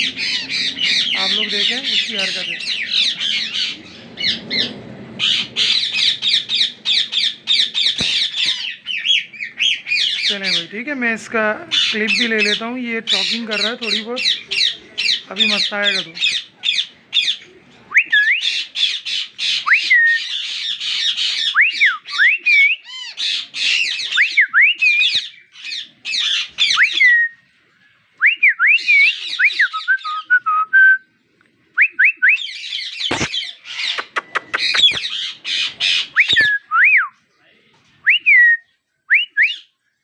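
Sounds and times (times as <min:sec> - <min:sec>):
parakeets chattering and squawking: 0:00.0 - 0:21.6, 0:22.5 - 0:28.1, 0:32.4 - 0:36.5.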